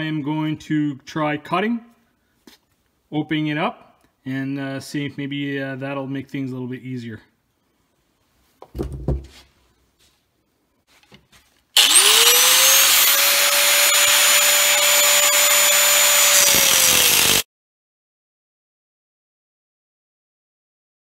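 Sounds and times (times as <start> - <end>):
knocks of handling: 8.6 - 9.5
handheld grinder cutting metal: 11.8 - 17.5.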